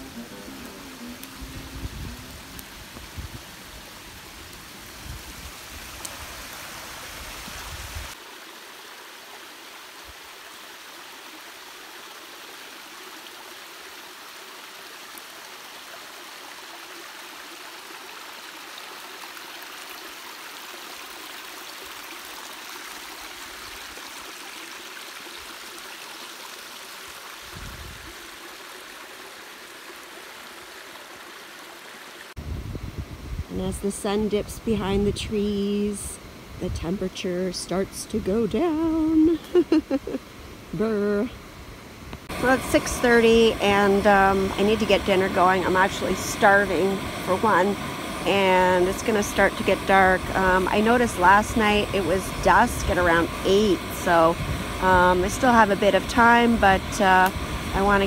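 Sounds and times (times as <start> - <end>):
wind rumble on microphone: 0.0 - 6.4, 27.4 - 28.2, 32.4 - 35.7, 49.5 - 58.0
rushing flowing water: 0.0 - 32.4, 42.2 - 58.0.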